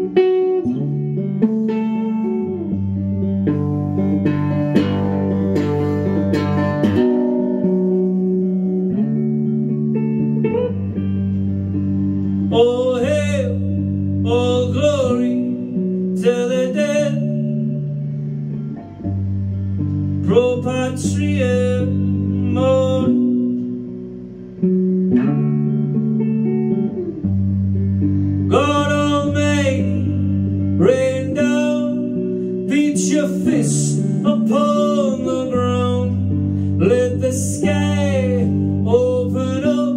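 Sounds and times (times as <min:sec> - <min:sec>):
electric guitar playing: 0:00.0 - 0:39.9
man singing: 0:12.5 - 0:17.8, 0:20.2 - 0:23.5, 0:28.5 - 0:39.9.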